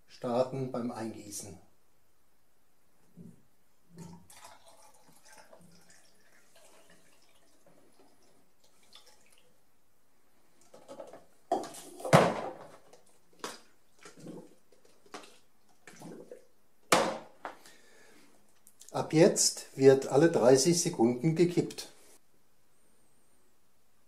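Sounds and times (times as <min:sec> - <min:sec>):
liquid trickling into a tank: 0:04.0 - 0:09.6
plastic knocks and clatters: 0:10.7 - 0:13.6.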